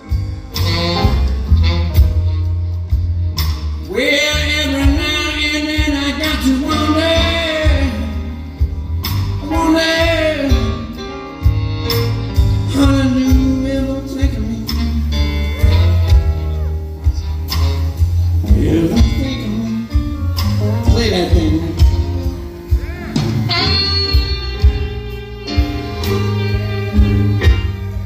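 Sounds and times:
blues band playing: 0.0 - 28.0
harmonica wailing bent notes: 14.7 - 28.0.

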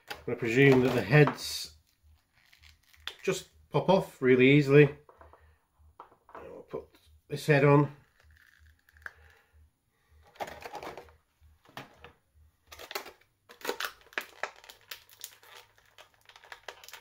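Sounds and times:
plastic bag crinkling: 0.1 - 3.4, 8.0 - 9.4, 10.3 - 11.1, 12.7 - 17.0.

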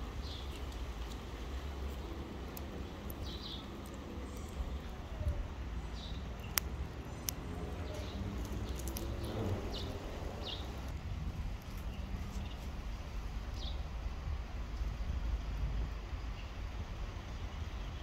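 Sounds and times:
bird chirping: 2.8 - 10.9.

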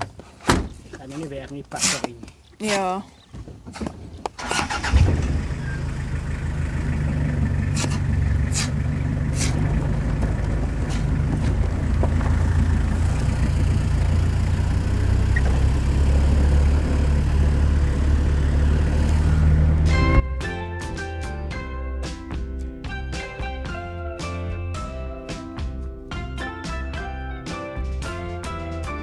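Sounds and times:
pickup truck engine running: 4.5 - 20.2.

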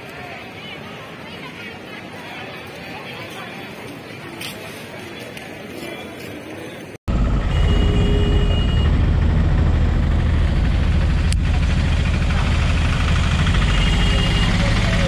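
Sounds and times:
auto-rickshaw engine rumbling: 7.1 - 15.0.

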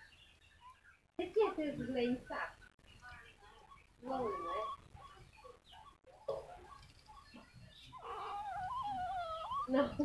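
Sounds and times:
newborn puppies squeaking: 3.1 - 10.0
puppy crying: 3.6 - 10.0.

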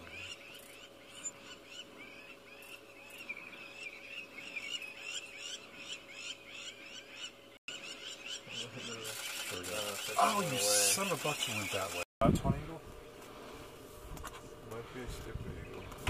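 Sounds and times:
chorus of high animal calls: 0.0 - 12.0.

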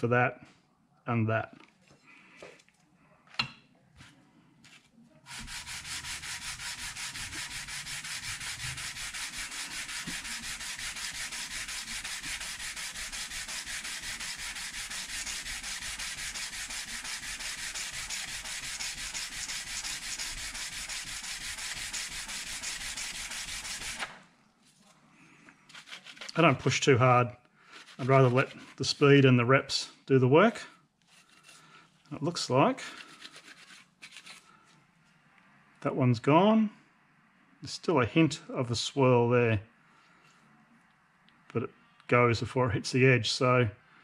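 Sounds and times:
metal scraping on abrasive plate: 5.3 - 24.0.

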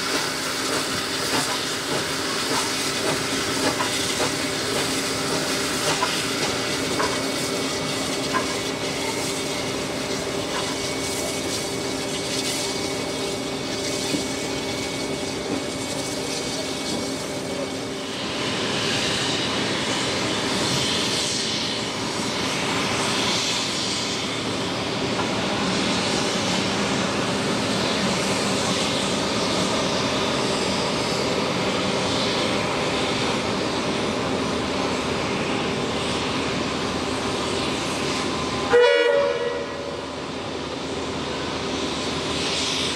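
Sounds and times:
rail clicks: 0.0 - 17.8
steam exhaust surges: 0.0 - 42.9
steam locomotive hiss and running: 0.0 - 42.9.

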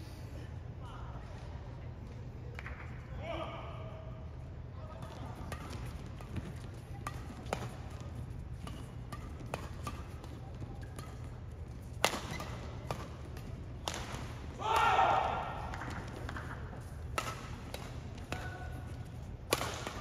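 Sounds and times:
low hall hum: 0.0 - 20.0
rackets hitting shuttlecock: 5.0 - 20.0.

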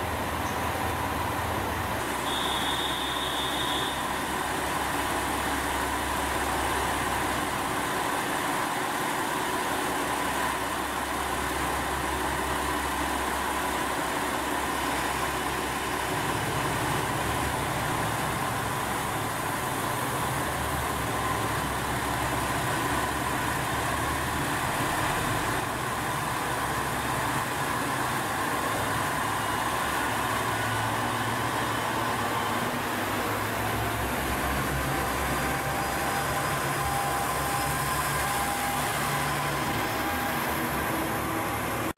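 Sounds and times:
diesel engine idling: 0.0 - 41.9.

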